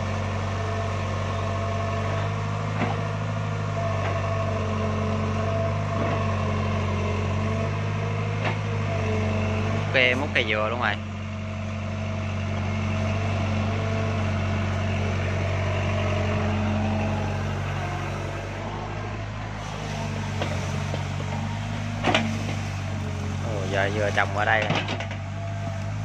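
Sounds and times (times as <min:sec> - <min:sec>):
excavator diesel engine running: 0:00.0 - 0:26.0
high-pitched hydraulic whine: 0:14.5 - 0:24.8.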